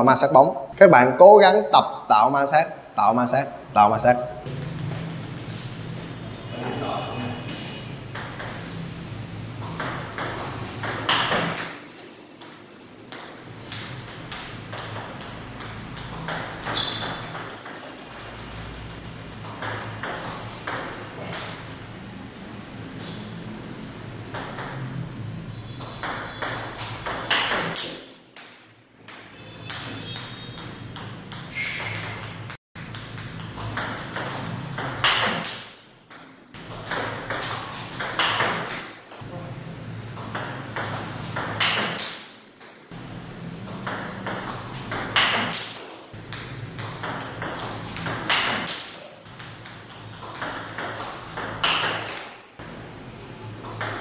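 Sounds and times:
table tennis balls clicking: 8.1 - 8.8, 9.6 - 21.8, 26.0 - 39.2, 40.2 - 42.9, 43.6 - 52.4, 53.6 - 54.0.

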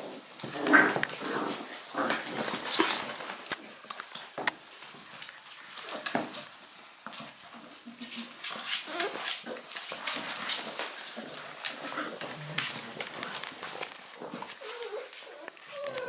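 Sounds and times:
puppies whimpering and yipping: 8.8 - 9.4, 14.2 - 16.0.

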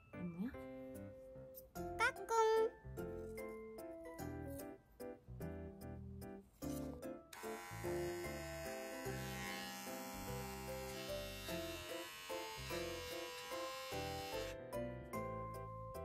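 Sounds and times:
background music: 0.0 - 16.0
paw trimmer buzzing: 7.4 - 14.5.

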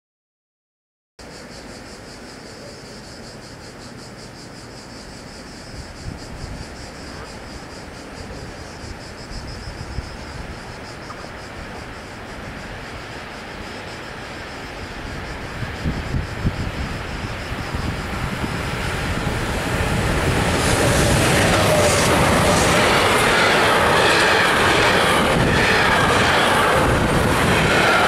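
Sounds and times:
electric train rumble: 1.2 - 28.0
insects chirring: 1.2 - 28.0
wind on microphone: 5.7 - 7.4, 14.9 - 28.0.

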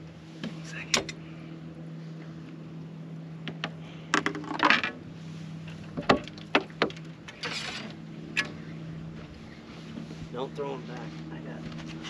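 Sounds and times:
steady low hum: 0.0 - 12.0
short rattling scrapes: 7.3 - 8.0.

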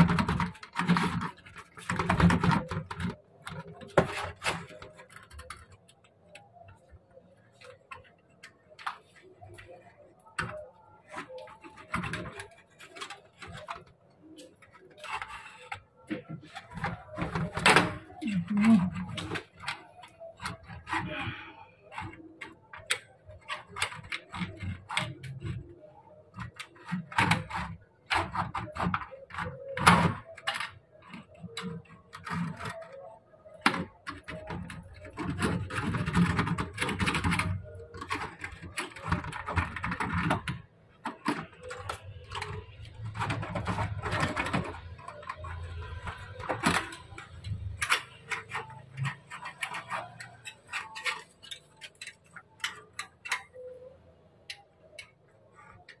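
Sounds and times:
metal wire rattling in window frame: 9.5 - 53.9.

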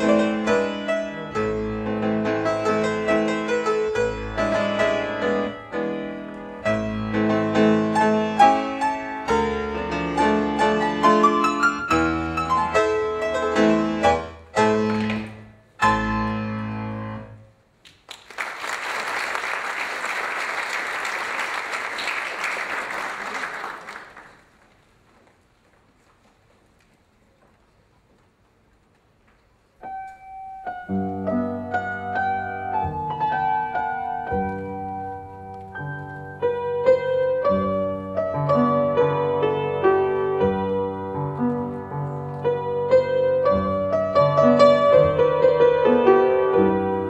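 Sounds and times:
solo piano music: 0.0 - 17.5, 29.8 - 47.0
audience applause: 17.8 - 25.0.

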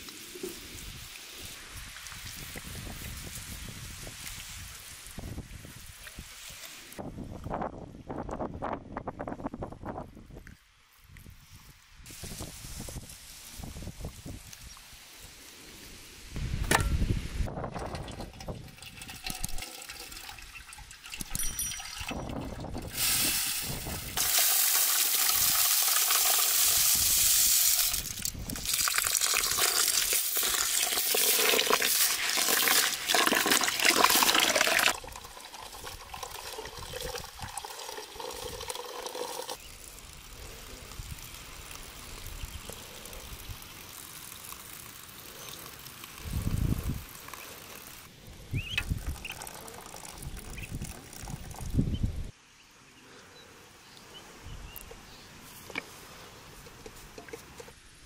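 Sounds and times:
water pouring into metal pot: 17.7 - 40.2, 48.8 - 51.8.

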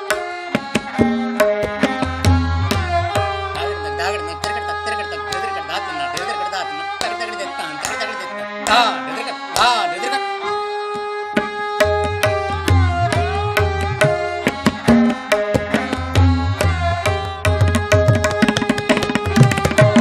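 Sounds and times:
tabla drumming: 0.0 - 9.9, 10.8 - 20.0
harmonium: 0.0 - 20.0
sarangi sliding between notes: 0.0 - 20.0.

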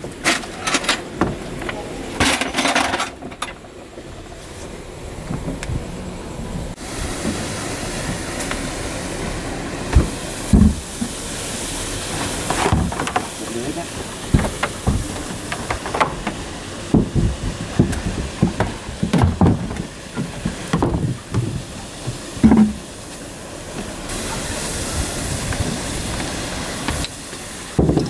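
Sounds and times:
steady hiss: 0.0 - 28.0
metal parts clunking on wood: 0.2 - 3.6.

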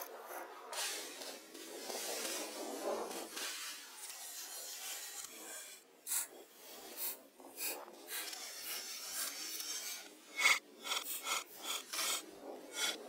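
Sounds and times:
knife scraping cuts: 6.9 - 13.0.

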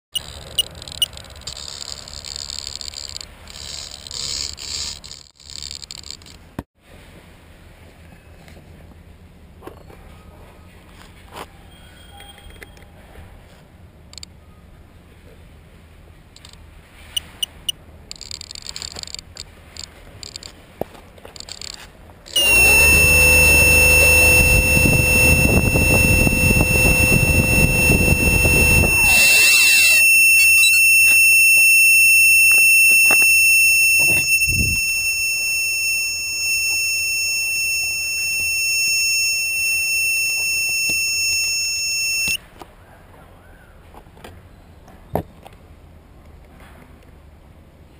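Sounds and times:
quadcopter motors and propellers: 0.2 - 6.4, 21.4 - 42.4
steady high-pitched tone: 22.3 - 42.4.

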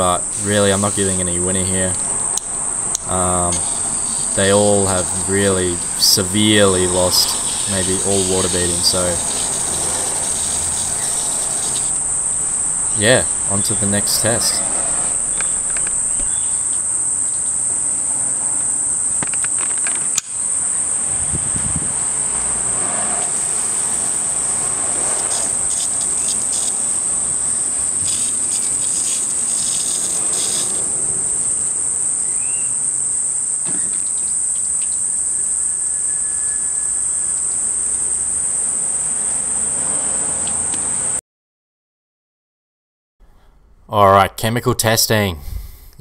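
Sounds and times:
insects trilling: 0.0 - 41.2
hose water splashing on panels: 3.6 - 12.0, 23.4 - 31.2
sharp click: 19.2 - 20.4.

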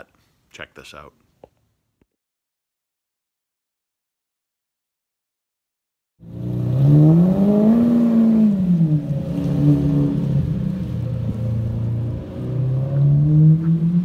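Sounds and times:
car engine revving: 6.2 - 14.0.

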